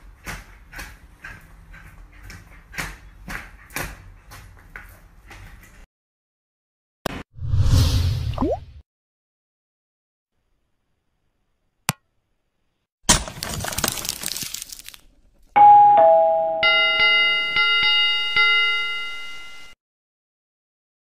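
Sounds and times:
glass shattering: 13.1s - 15.0s
bell ringing with repeated strikes: 15.6s - 19.7s
two-note doorbell ding-dong: 15.6s - 19.7s.

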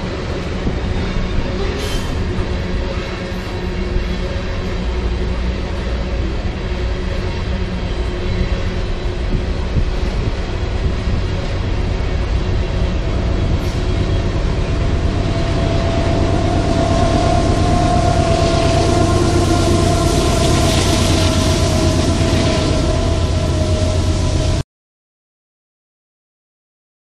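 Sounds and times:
locomotive whine: 0.0s - 24.6s
train wheels rumbling on rail: 0.0s - 24.6s.

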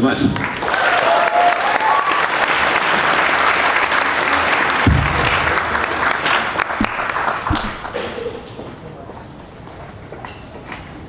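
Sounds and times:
audience applauding: 0.3s - 8.6s
low thumps: 4.7s - 8.0s.

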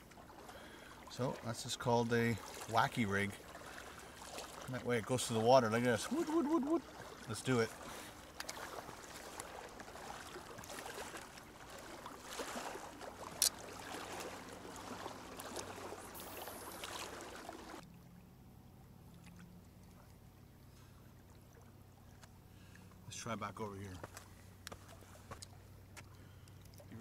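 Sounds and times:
small waves lapping on rocks: 0.0s - 17.8s.

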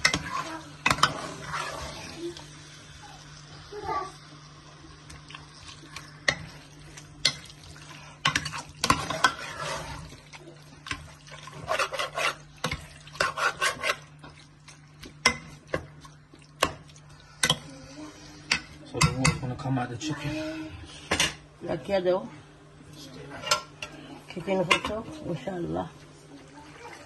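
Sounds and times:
spoon scraping against pot: 0.0s - 2.2s, 8.2s - 10.2s, 10.9s - 14.4s.

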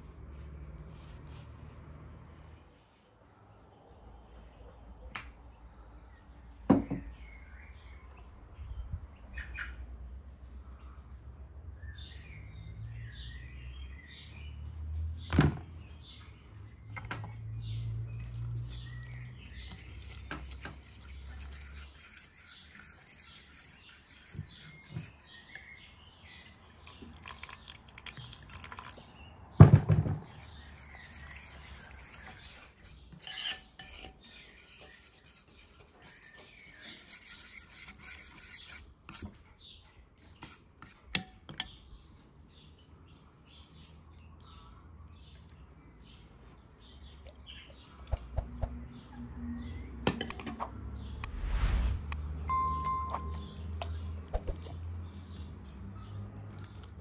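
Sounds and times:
cutlery scraping ceramic bowl: 18.2s - 25.8s, 30.2s - 39.3s.

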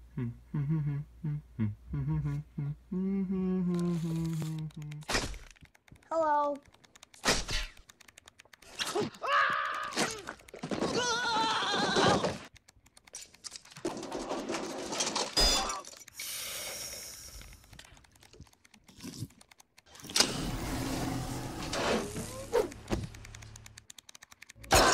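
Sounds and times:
man crying out in pain: 9.2s - 12.3s
hiss: 16.2s - 17.3s.

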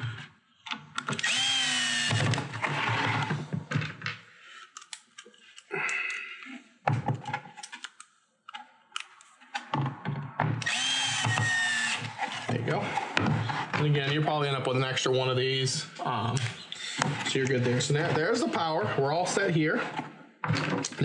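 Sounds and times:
cordless screw gun whine: 1.0s - 3.4s, 10.6s - 12.5s.

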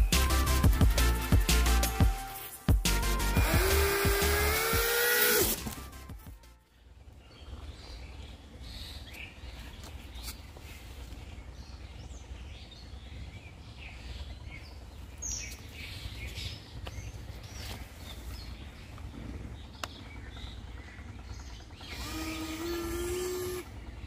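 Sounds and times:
low outdoor rumble: 0.0s - 24.0s
small electric motors whining: 0.1s - 6.4s, 21.6s - 24.0s
birds chirping: 6.6s - 24.0s.

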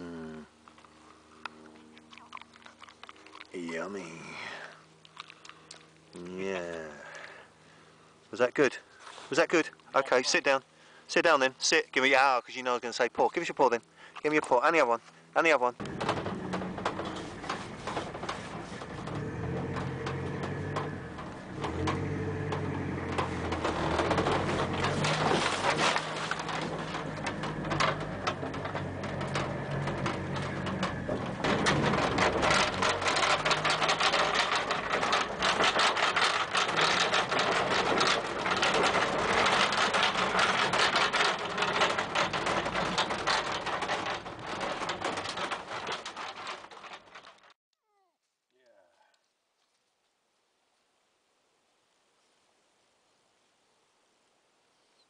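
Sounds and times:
vehicle body rattling over bumps: 11.2s - 47.6s
low engine hum: 15.1s - 45.6s.

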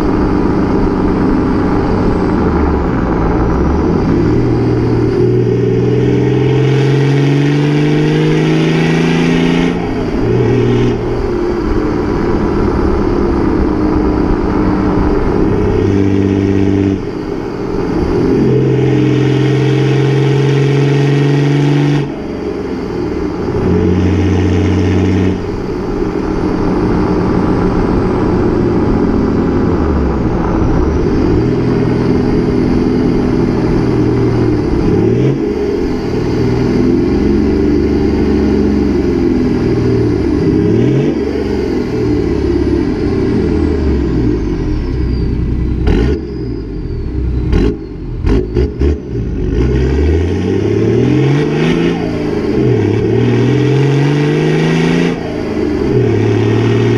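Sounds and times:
diesel engine accelerating: 0.0s - 56.9s
faint turbo whistle: 41.5s - 48.8s.

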